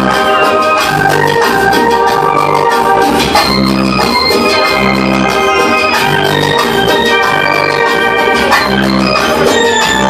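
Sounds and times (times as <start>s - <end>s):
dance music with electronic keyboard: 0.0s - 10.0s
pulsing bass line: 0.0s - 10.0s.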